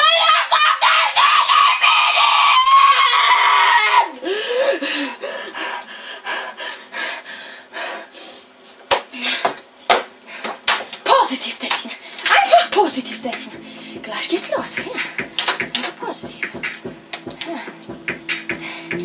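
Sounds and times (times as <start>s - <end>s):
boy screaming: 0.0s - 4.2s.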